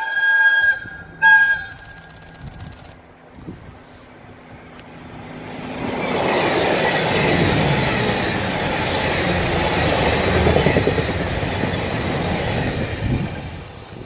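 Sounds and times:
train engines: 0.0 - 14.0
train wheels rumbling and clattering: 4.5 - 14.0.

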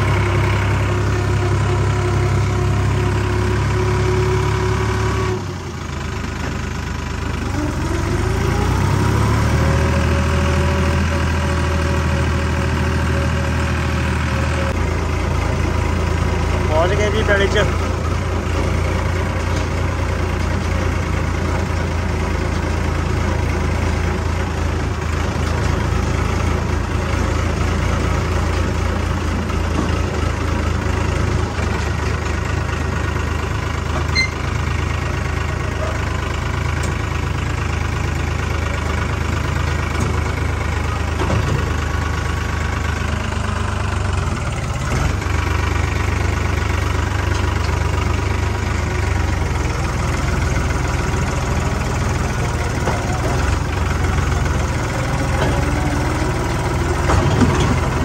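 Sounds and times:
diesel engine droning: 0.0 - 58.0.

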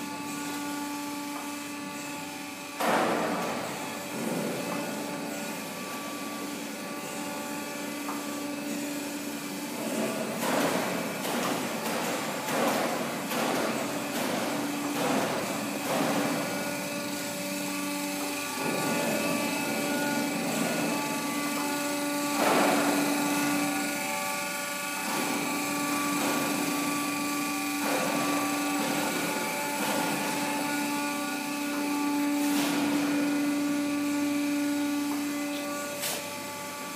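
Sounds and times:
surface grinder whining: 14.8 - 36.9.

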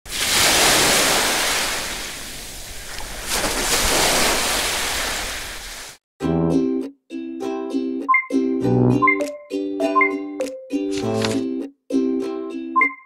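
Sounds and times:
sea waves washing in: 0.1 - 6.0
short keyboard tune: 6.2 - 6.9.

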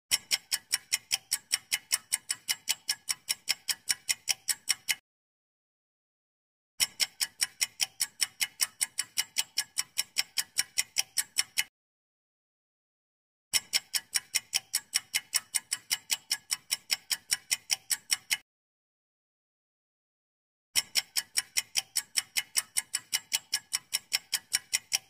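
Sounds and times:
clock ticking: 0.1 - 5.0, 6.8 - 11.7, 13.5 - 18.4, 20.8 - 25.0.

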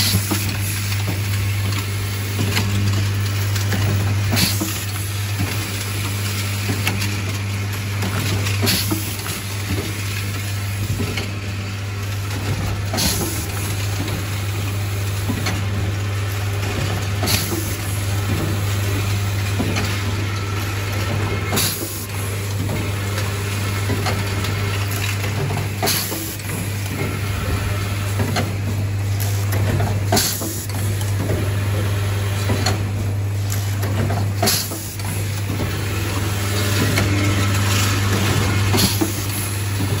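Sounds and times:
pneumatic mechanism clicks and clatter: 0.0 - 11.5, 12.1 - 40.0
machine humming: 0.0 - 40.0
sharp air hiss or clack: 25.8 - 26.4, 30.1 - 30.8, 34.4 - 35.1.

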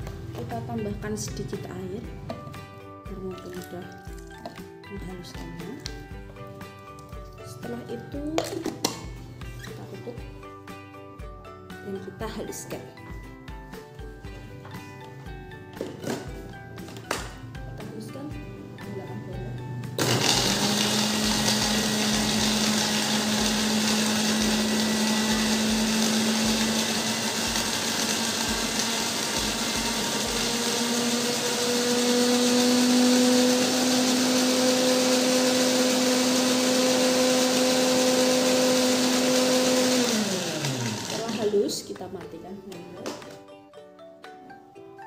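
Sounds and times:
electric blender motor: 19.9 - 41.6.

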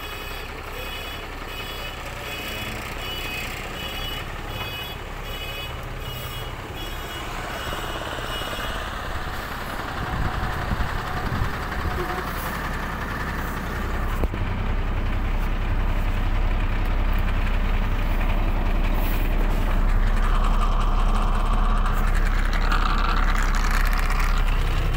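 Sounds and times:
reversing alarm beeping: 0.0 - 9.6
truck engine idling: 0.0 - 24.9.

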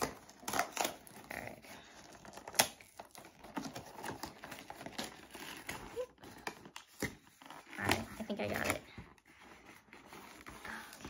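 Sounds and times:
cardboard box being torn open: 0.0 - 8.8
packaging crinkles and clicks: 2.0 - 8.7.

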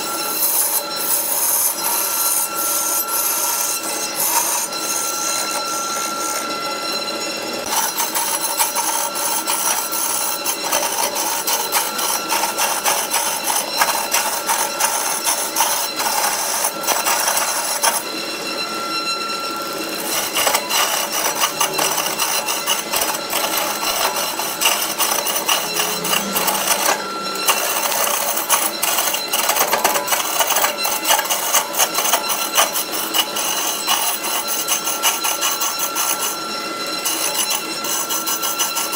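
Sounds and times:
turning tool scraping wood: 0.0 - 6.6, 7.6 - 18.2, 19.3 - 38.9
lathe motor hum: 0.0 - 38.9.

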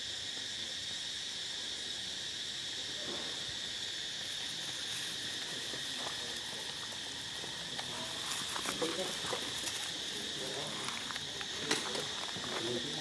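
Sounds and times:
high-pitched insect chorus: 0.0 - 13.0
light crackles in dry leaves: 3.0 - 13.0.

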